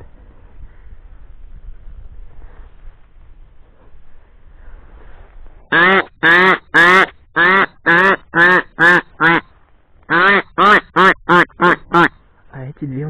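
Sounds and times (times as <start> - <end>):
duck quacking: 5.7 - 9.5, 10.1 - 12.2.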